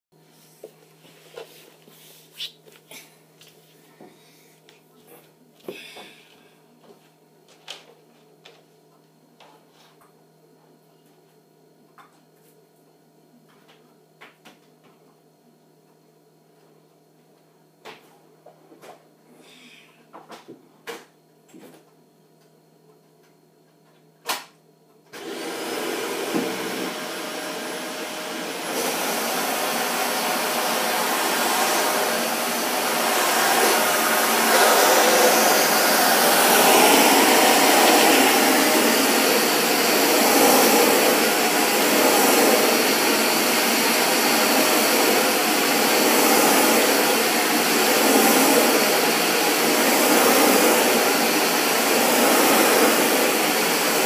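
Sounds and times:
vacuum cleaner whining: 25.1 - 54.0.

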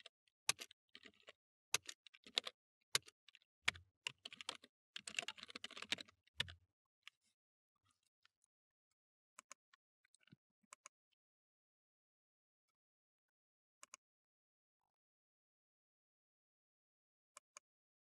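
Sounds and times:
typing on computer keyboard: 0.0 - 6.6.

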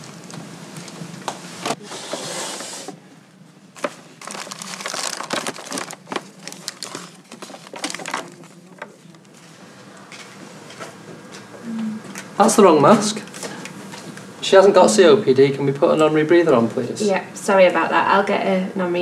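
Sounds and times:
plastic packaging crinkling: 3.8 - 9.3.

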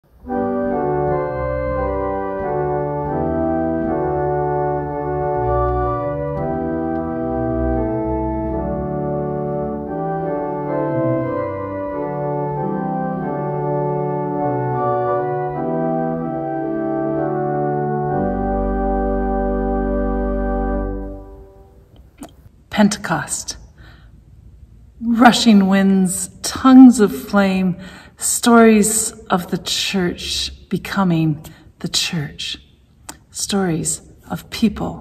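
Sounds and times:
pipe organ chords: 0.0 - 22.2.

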